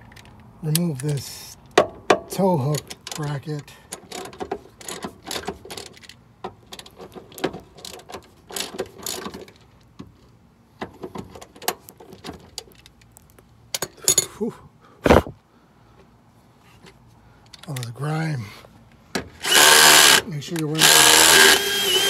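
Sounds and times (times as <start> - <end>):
hand ratchet clicking: 19.4 - 22.0.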